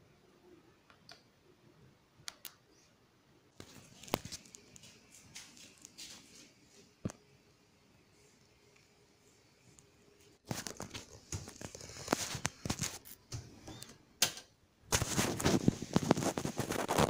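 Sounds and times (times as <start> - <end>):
rustling of bedding: 14.9 - 17.0.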